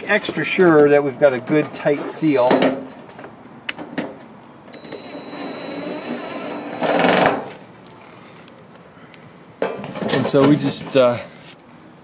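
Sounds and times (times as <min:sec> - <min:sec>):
cordless drill driving screw: 0:04.8 - 0:07.3.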